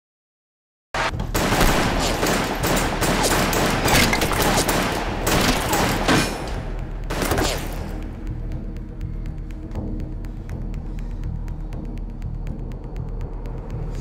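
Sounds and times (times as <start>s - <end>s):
rapid pistol gunfire: 1.3s - 7.9s.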